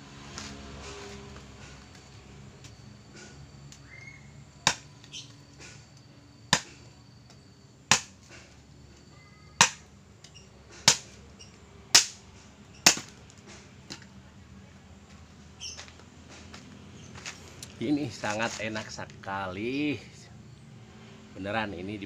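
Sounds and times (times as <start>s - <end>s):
machete chopping wood: 4.6s - 5.2s, 6.5s - 6.8s, 7.9s - 8.4s, 9.6s - 9.9s, 10.8s - 11.2s, 11.9s - 12.2s, 12.8s - 13.2s.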